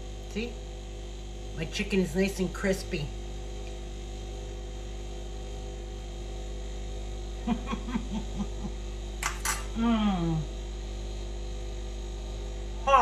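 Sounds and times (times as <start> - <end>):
mains hum: 0.0 - 13.0
woman humming while chewing: 9.7 - 10.5.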